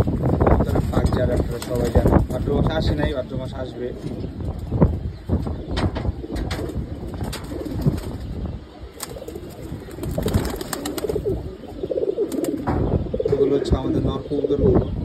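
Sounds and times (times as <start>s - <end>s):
pigeons cooing: 0.5s - 15.0s
wing flap: 0.8s - 2.5s, 9.0s - 11.5s, 12.2s - 12.7s.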